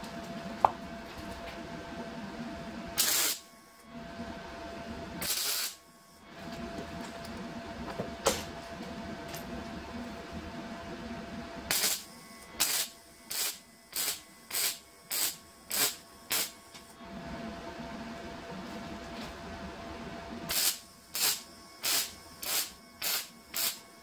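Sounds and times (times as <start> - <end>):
welder arc crackling: 3.0 - 3.5, 5.2 - 5.8, 11.7 - 16.9, 20.5 - 23.9.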